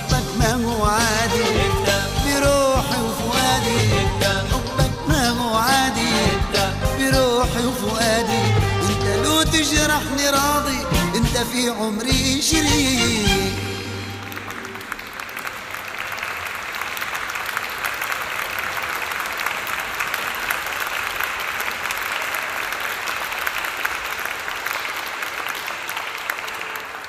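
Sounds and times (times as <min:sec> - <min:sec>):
audience applauding: 0:13.4 - 0:27.0.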